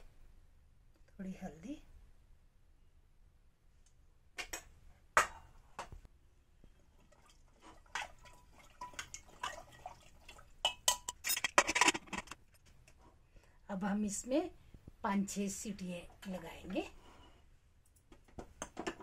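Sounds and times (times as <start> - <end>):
water splashing: 7.0 - 10.6
spoon clinking and scraping pot: 7.9 - 12.3.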